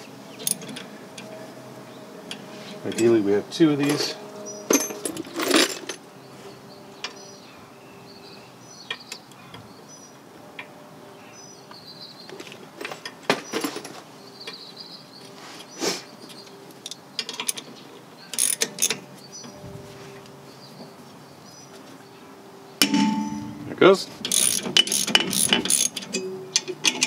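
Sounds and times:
socket wrench ratcheting: 0:24.3 - 0:26.2.

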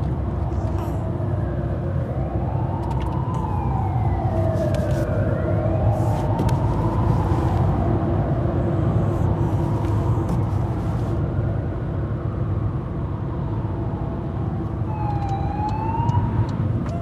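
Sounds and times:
car engine and road rumble: 0:00.0 - 0:17.0
siren wailing: 0:01.1 - 0:09.0, 0:14.8 - 0:17.0.

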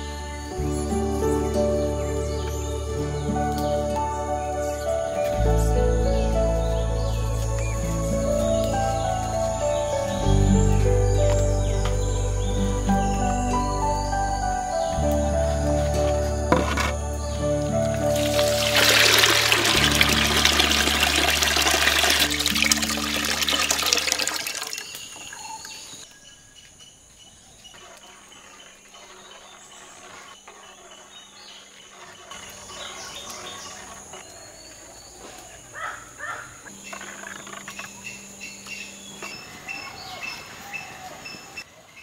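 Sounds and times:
background music: 0:00.0 - 0:24.6
faint birds chirping: 0:00.0 - 0:42.0
liquid splashing into a pot: 0:18.2 - 0:25.3.

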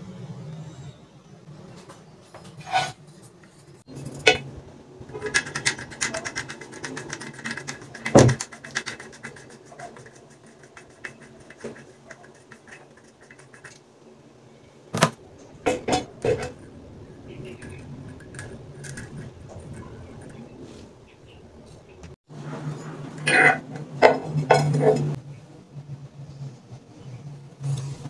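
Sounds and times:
fast rattling ticks: 0:05.1 - 0:13.8, 0:16.2 - 0:20.6
metal faucet parts clicking: 0:17.2 - 0:20.4.

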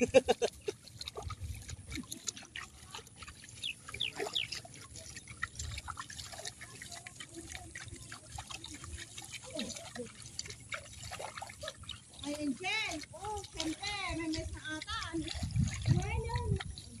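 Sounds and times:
splashing of muddy water: 0:00.0 - 0:17.0
faint voices: 0:06.1 - 0:10.8.

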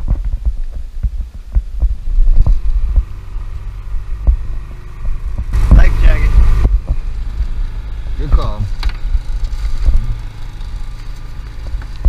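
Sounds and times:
boat motor hum: 0:00.0 - 0:12.0
wind buffeting microphone: 0:00.0 - 0:12.0.

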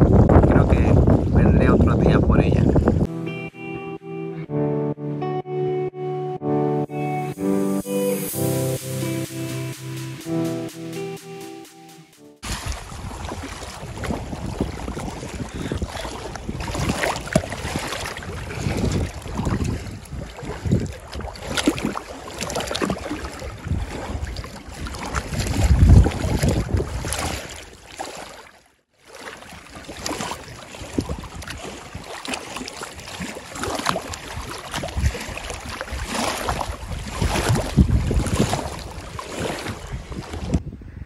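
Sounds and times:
wind buffeting microphone: 0:00.0 - 0:03.1, 0:12.4 - 0:27.8, 0:30.0 - 0:41.0
water splashing against rocks: 0:12.4 - 0:40.6.

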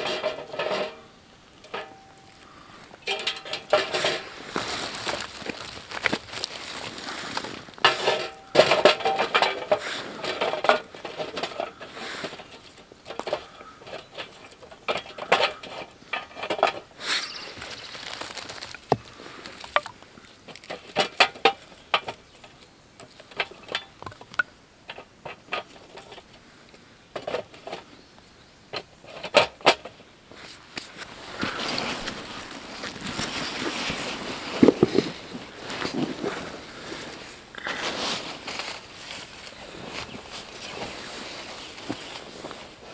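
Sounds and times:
sticks clinking on sheet metal: 0:00.0 - 0:02.4, 0:03.0 - 0:04.3, 0:07.8 - 0:16.8
wooden sticks clattering: 0:00.0 - 0:26.4, 0:28.7 - 0:42.9.

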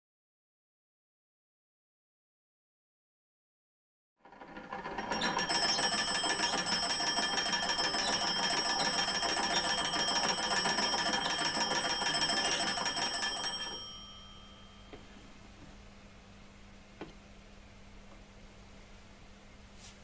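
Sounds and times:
telephone bells ringing: 0:04.5 - 0:15.1.

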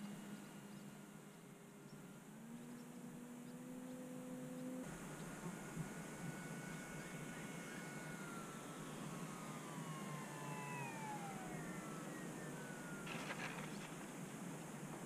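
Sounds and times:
faint motor whine: 0:00.0 - 0:15.0
brief rustle: 0:13.0 - 0:14.1.

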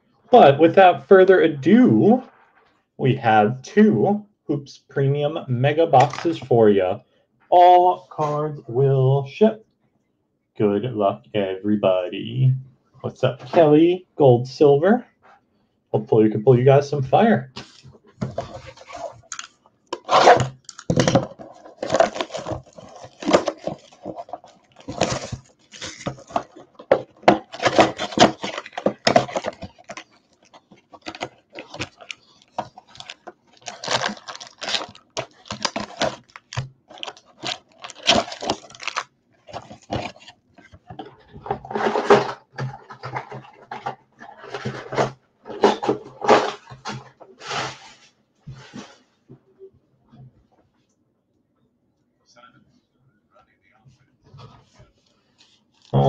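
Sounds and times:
foil packs rustling and crinkling: 0:17.6 - 0:48.0
plastic wrap tearing: 0:18.4 - 0:40.3.

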